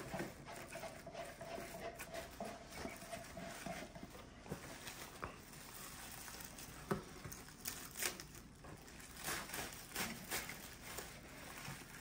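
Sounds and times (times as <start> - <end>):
plastic crinkling: 2.7 - 12.0
scissors snipping plastic: 6.5 - 11.2.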